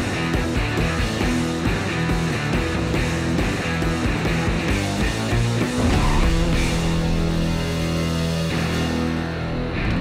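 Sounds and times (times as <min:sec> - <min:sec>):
rock music with electric guitar: 0:00.0 - 0:10.0.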